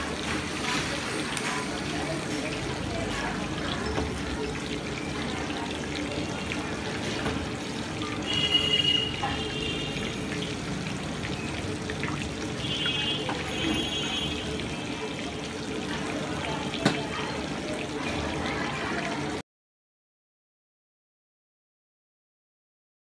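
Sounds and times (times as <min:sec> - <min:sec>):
meat sizzling in hot oil: 0:00.0 - 0:19.4.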